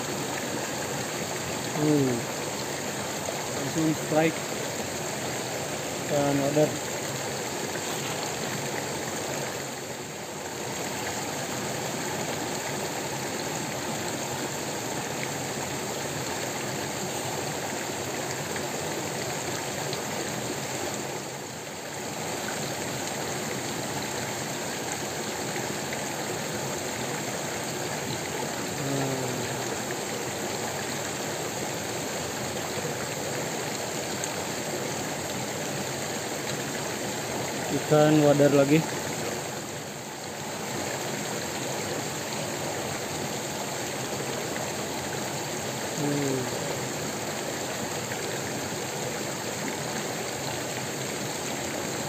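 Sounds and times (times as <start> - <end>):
stream rushing over rocks: 0.0 - 52.0.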